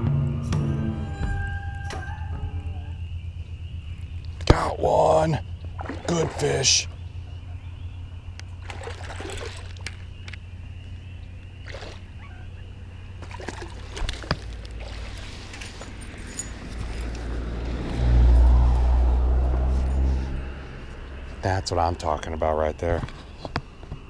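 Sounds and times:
faint water sounds: 3.8s - 17.0s.

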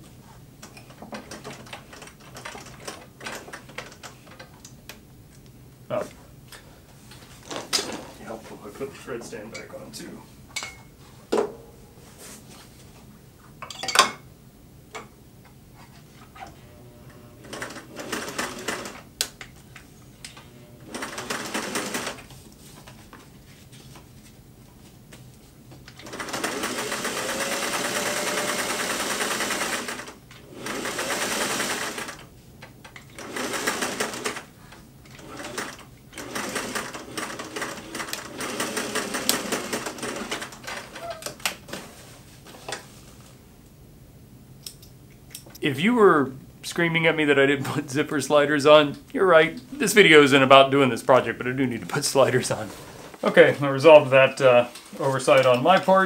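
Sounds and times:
sewing machine stitching: 16.6s - 19.1s, 20.6s - 22.3s, 26.0s - 32.3s, 33.0s - 41.1s.

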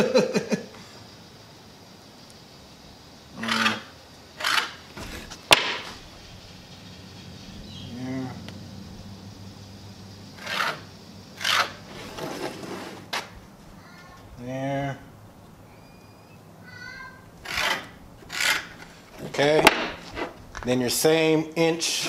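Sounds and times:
pencil scratching on plywood: 11.4s - 13.0s.

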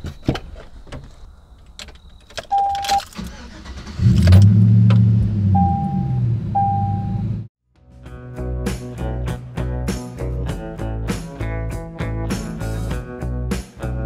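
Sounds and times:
truck engine starting and idling: 2.5s - 7.5s.

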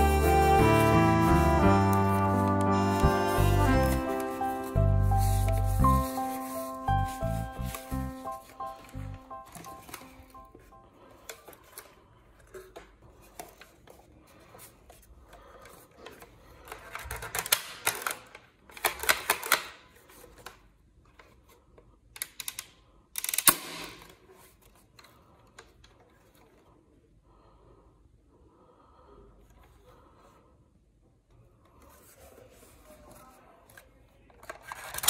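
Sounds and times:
plastic clattering and scraping: 11.2s - 21.6s, 31.7s - 35.0s
plastic toy clicks and rattles: 15.6s - 19.8s, 22.2s - 24.3s, 34.4s - 35.0s.

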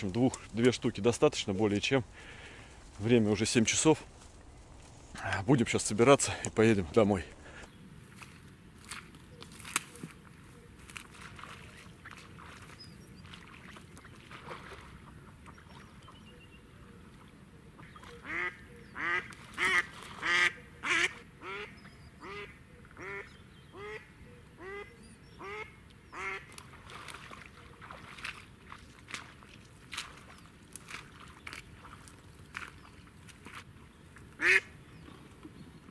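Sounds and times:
footsteps through wet grass: 0.0s - 16.2s, 17.0s - 21.6s, 25.4s - 35.9s
duck quacking: 17.8s - 26.5s, 34.4s - 34.7s.

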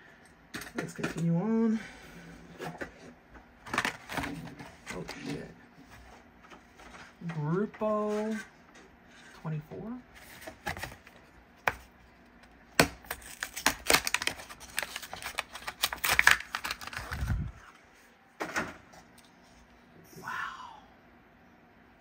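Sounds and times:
cardboard tearing: 12.8s - 17.3s.

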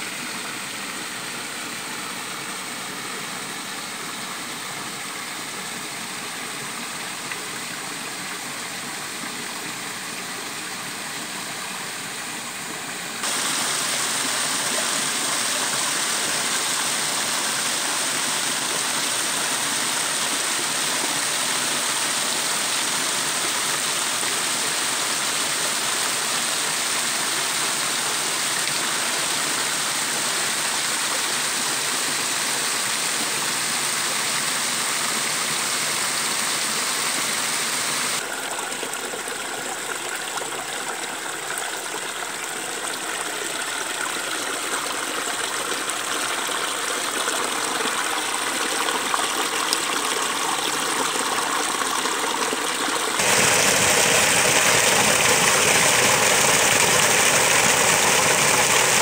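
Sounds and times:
stream running over pebbles: 0.1s - 59.0s
waterfall splashing onto rocks: 13.2s - 22.7s, 52.0s - 59.0s.

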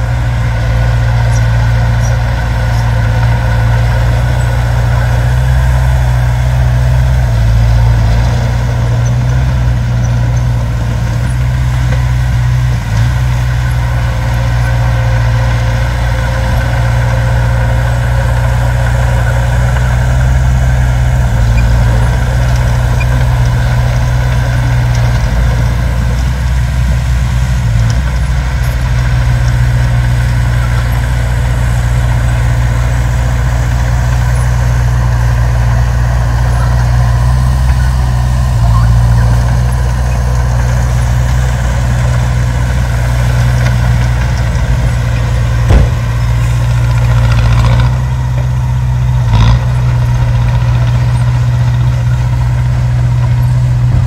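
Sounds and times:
diesel truck engine idling: 0.0s - 54.0s.

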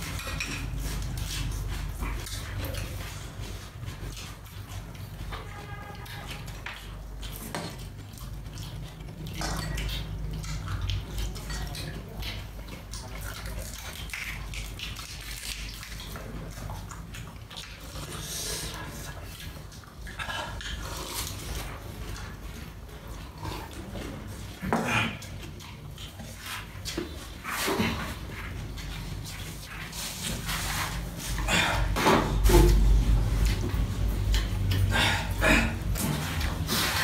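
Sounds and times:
wet chewing and slurping: 0.0s - 37.0s
steady low hum: 16.2s - 37.0s.

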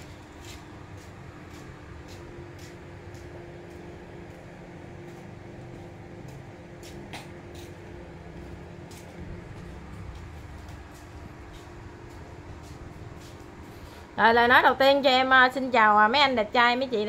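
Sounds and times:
background hum and rumble: 0.0s - 17.0s.

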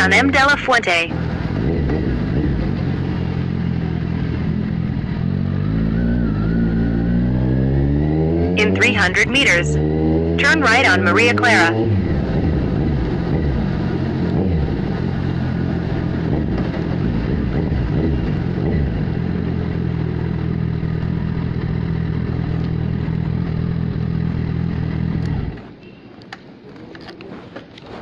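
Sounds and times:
motorcycle engine revving and idling: 1.1s - 25.8s.

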